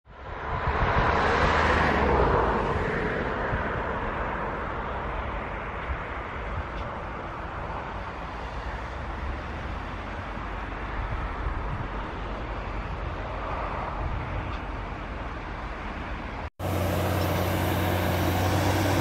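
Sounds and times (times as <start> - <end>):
tractor engine under load: 16.6 - 19.0.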